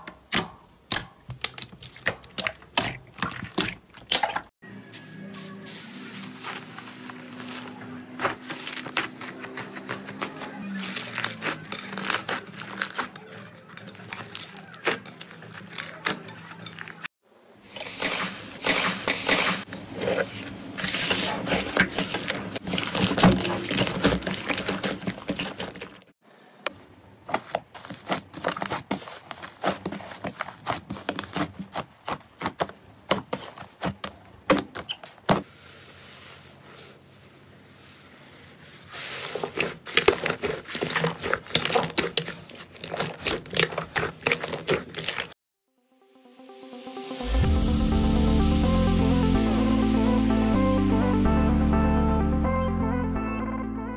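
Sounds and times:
slime crackling and popping: 10.8 - 13.1.

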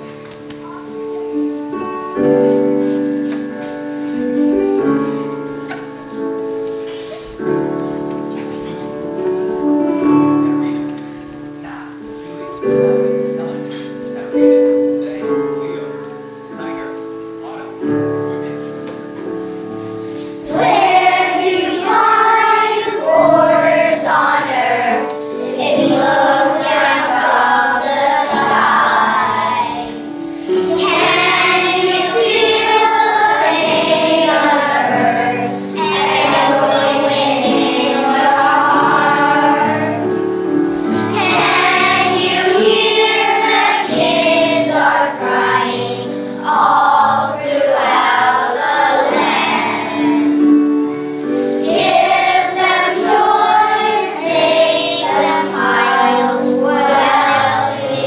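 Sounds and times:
piano playing chords: 0.0 - 58.0
children singing: 20.4 - 50.6, 51.3 - 58.0.

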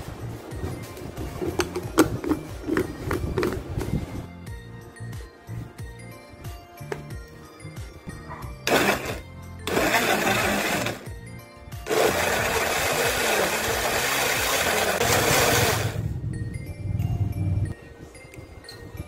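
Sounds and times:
blender motor running: 8.6 - 11.1, 11.8 - 16.0.

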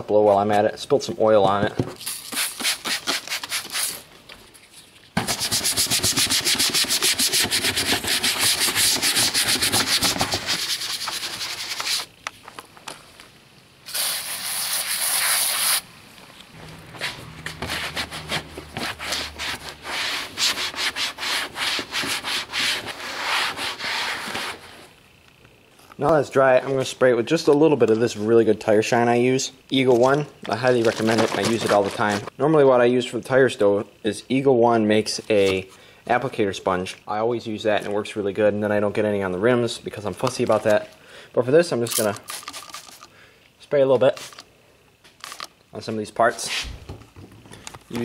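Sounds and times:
cloth rubbing engine cover: 16.6 - 24.9.

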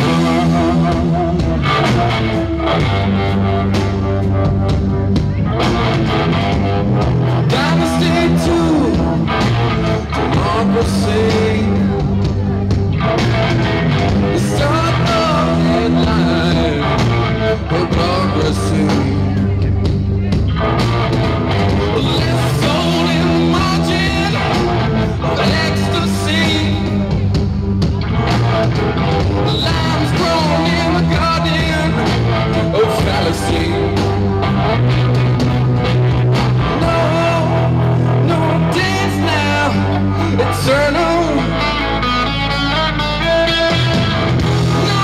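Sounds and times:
man singing: 0.0 - 2.7, 6.4 - 13.1, 14.2 - 20.4, 21.8 - 27.4, 29.4 - 34.5, 36.5 - 45.0
drum kit: 0.0 - 45.0
electric guitar: 0.0 - 45.0.

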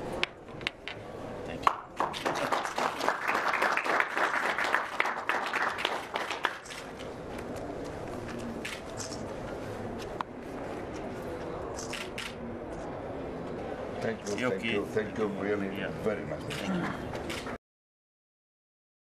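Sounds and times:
small group applauding: 1.6 - 7.0.

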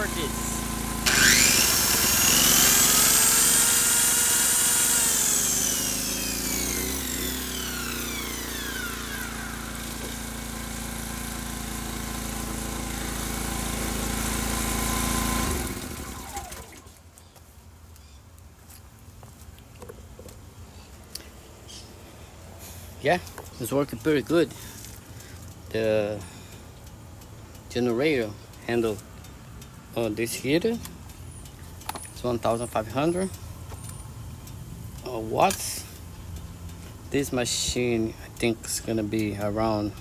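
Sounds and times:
electric machine whine: 0.0 - 17.0
generator engine running: 0.0 - 17.0.

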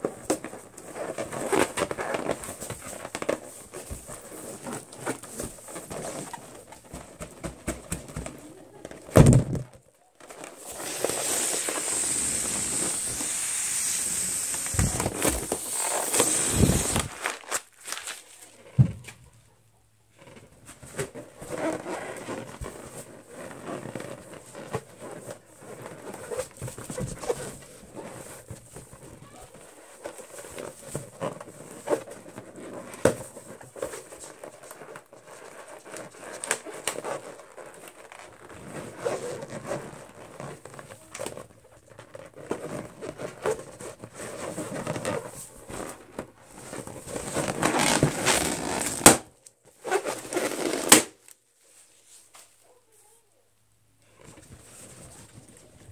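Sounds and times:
fingernails scratching a balloon: 10.4 - 17.2, 20.1 - 49.1.

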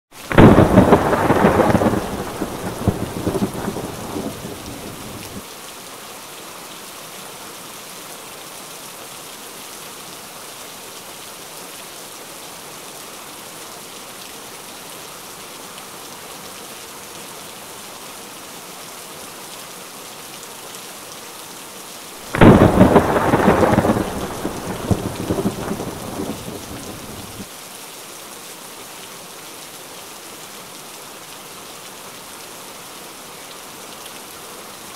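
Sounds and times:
steady rain: 0.1 - 34.9
thunder rolling: 0.3 - 5.4, 22.3 - 27.4.

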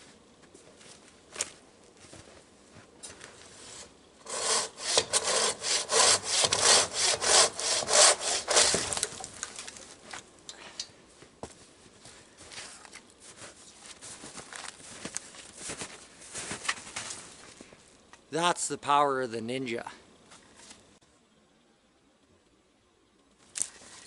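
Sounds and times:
hand saw cutting wood: 3.7 - 9.3.

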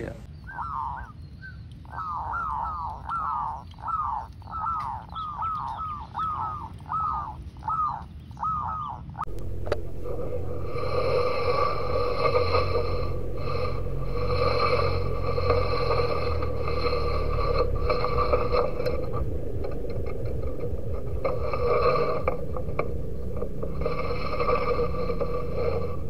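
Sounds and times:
dove cooing: 0.5 - 1.2, 1.9 - 26.0
steady tonal drone: 9.2 - 26.0.

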